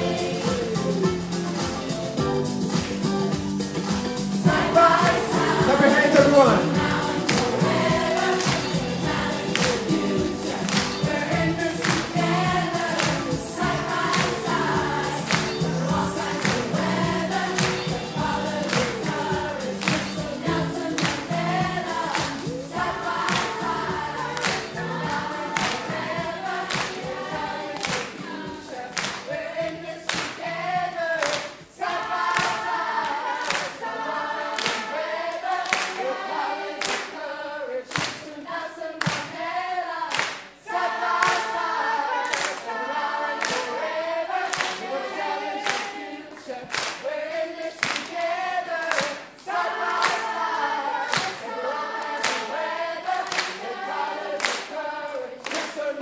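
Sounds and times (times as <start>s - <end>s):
choir singing reggae song: 0.0s - 56.0s
hand claps: 7.2s - 30.5s, 31.2s - 33.8s, 34.5s - 36.1s, 36.8s - 37.2s, 37.9s - 38.3s, 39.0s - 39.4s, 40.1s - 40.6s, 41.2s - 42.7s, 43.4s - 43.8s, 44.4s - 44.9s, 45.6s - 50.4s, 51.0s - 56.0s.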